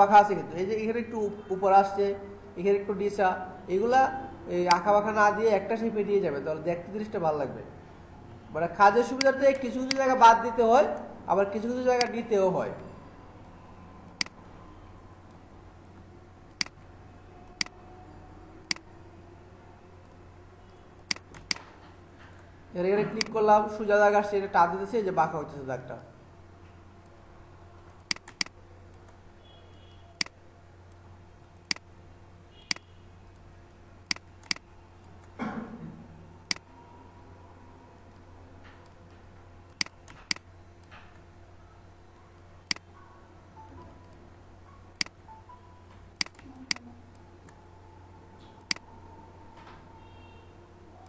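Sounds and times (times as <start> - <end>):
mouse button clicking: 32.6 - 32.9.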